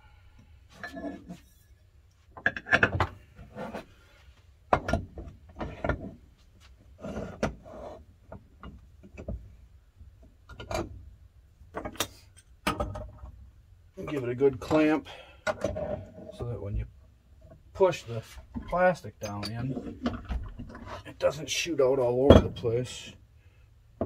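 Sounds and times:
metal-on-metal scraping: 0:00.7 - 0:01.9.

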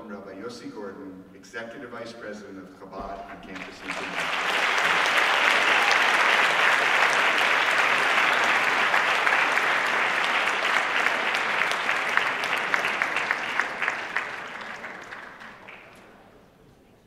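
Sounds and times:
audience applauding: 0:03.3 - 0:16.2.

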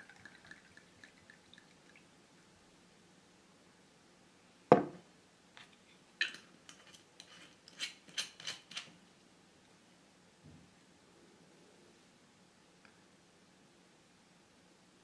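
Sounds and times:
bottle knocking on tabletop: 0:04.7 - 0:05.0.

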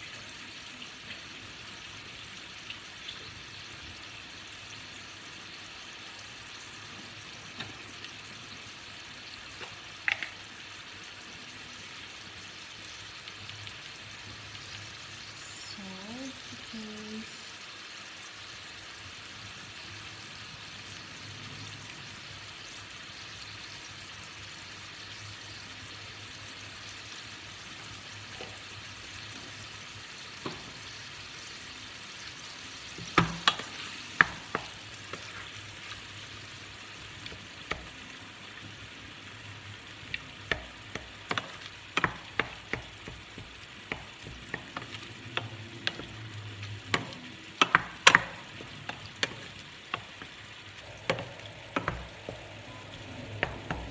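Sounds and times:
meat sizzling in a pot: 0:00.0 - 0:53.9
wooden spoon scraping a pot: 0:33.4 - 0:35.9.

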